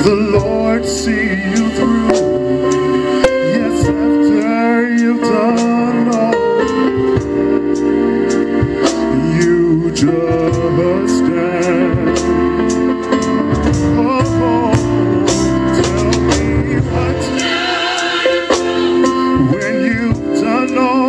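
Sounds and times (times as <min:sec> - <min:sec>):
choir singing: 0:00.0 - 0:06.6, 0:13.4 - 0:21.0
man singing into a microphone: 0:00.0 - 0:07.2, 0:09.0 - 0:12.8, 0:13.7 - 0:21.0
steady beat: 0:00.0 - 0:21.0.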